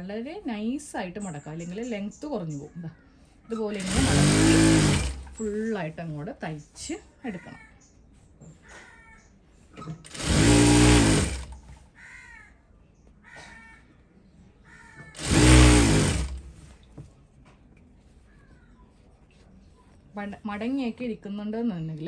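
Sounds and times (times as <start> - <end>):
sewing machine stitching: 3.7 - 5.7, 10.0 - 11.7, 15.2 - 16.7.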